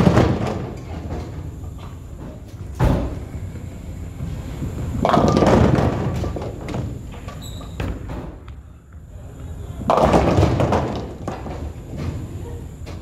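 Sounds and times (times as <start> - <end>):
bowling ball rolling down lane: 0.0 - 1.6, 4.2 - 8.1, 9.8 - 13.0
bowling pins clattering: 0.0 - 3.5, 4.6 - 8.4, 9.8 - 13.0.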